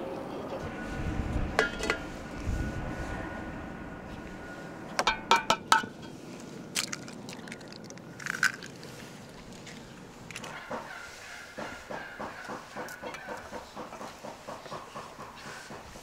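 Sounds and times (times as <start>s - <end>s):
eggshells crackling: 6.7s - 10.6s.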